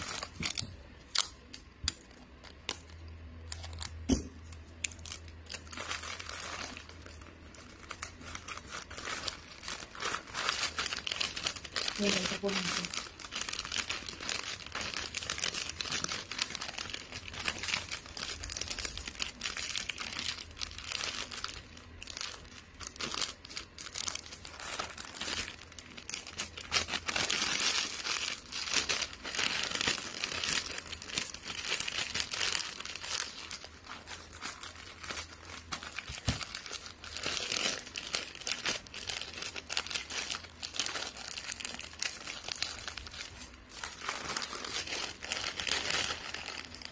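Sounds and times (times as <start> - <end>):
gift wrap crinkling: 0.0 - 46.9.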